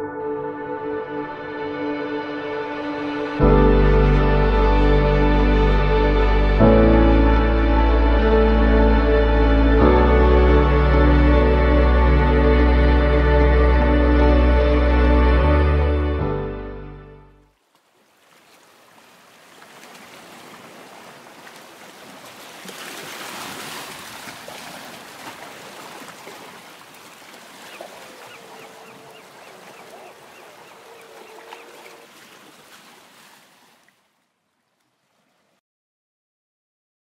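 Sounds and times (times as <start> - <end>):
ocean surf washing on beach: 18.1 - 33.9.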